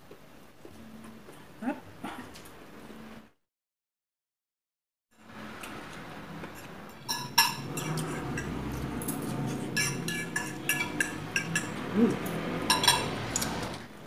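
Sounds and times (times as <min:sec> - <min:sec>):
cutlery clinking against plates: 0:06.4 - 0:13.8.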